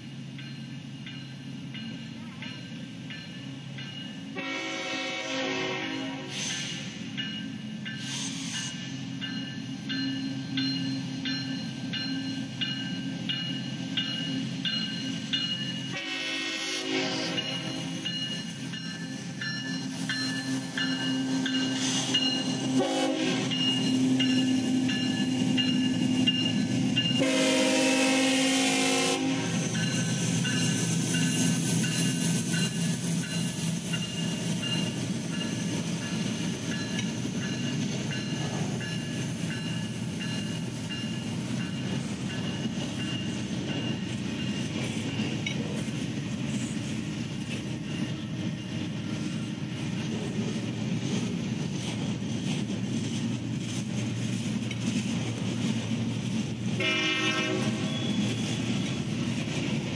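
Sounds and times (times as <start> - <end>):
train cars rumbling and clattering: 0.0 - 59.9
train horn: 4.3 - 6.5, 15.9 - 18.0, 22.7 - 23.5, 27.2 - 29.7, 56.8 - 58.2
locomotive engine drone: 7.0 - 59.9.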